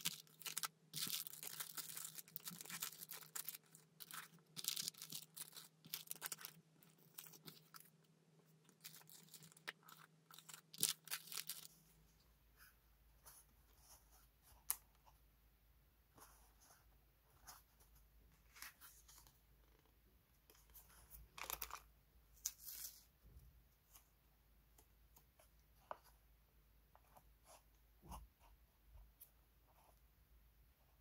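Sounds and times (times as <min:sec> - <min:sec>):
plastic packets crinkling: 0:00.0 - 0:07.9, 0:08.8 - 0:11.7.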